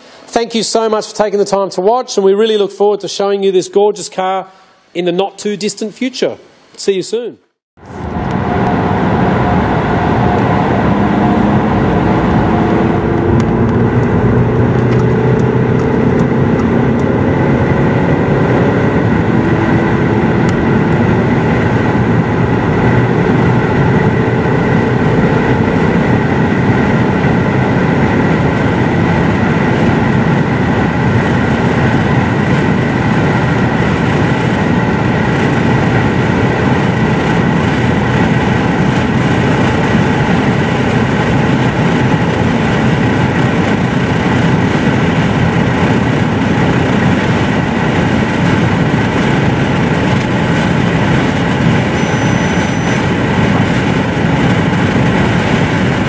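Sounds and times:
car engine accelerating hard: 0:07.8 - 0:56.0
wind noise: 0:07.8 - 0:56.0
gear upshifts: 0:36.7 - 0:56.0.

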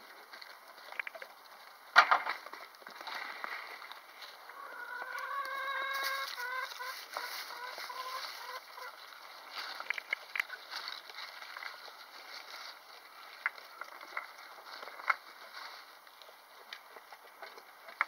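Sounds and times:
drawn-out animal calls: 0:04.2 - 0:18.0.

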